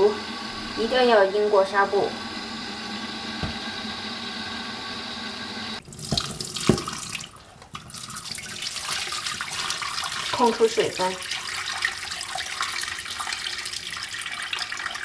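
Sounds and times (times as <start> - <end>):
knocks: 3.4 - 3.6
tap water running into a bowl: 5.8 - 15.0
water pouring and splashing: 5.8 - 15.0.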